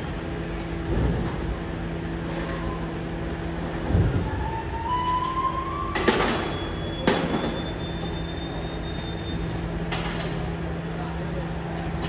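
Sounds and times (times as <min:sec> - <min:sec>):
machinery humming with whine: 0:00.0 - 0:12.0.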